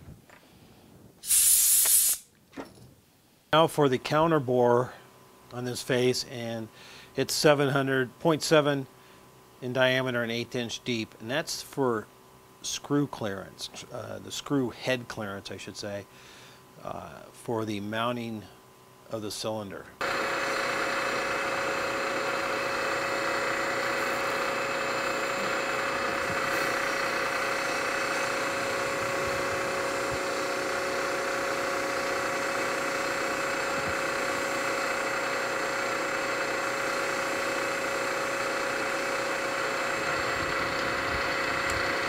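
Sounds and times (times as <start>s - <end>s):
milling machine cutting metal: 20.0s - 42.0s.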